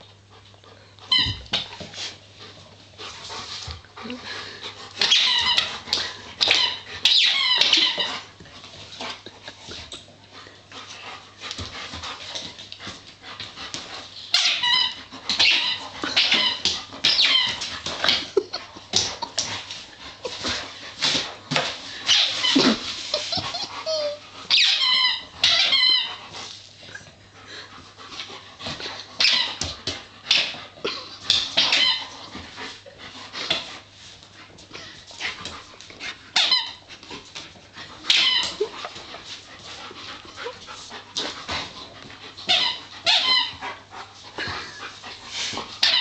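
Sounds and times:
squeaky toy squeaking: 0:14.4 - 0:17.6, 0:23.3 - 0:26.1, 0:38.1 - 0:38.5.

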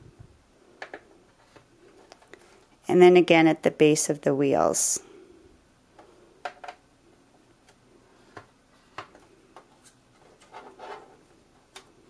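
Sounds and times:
rustling scrape: 0:10.2 - 0:11.2.

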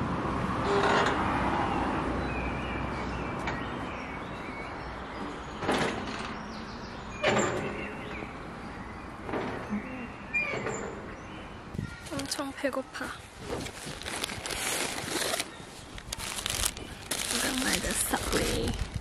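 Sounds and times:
small birds chirping: 0:14.6 - 0:19.0.

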